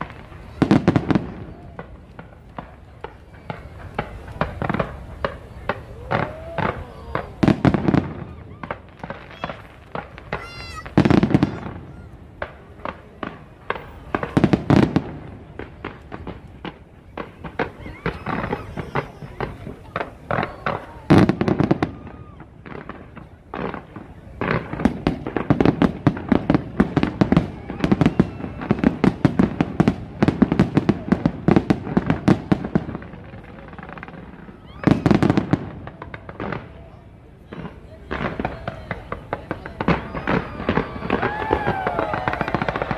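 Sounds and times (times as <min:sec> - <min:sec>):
fireworks bangs: 0:00.0 - 0:42.9.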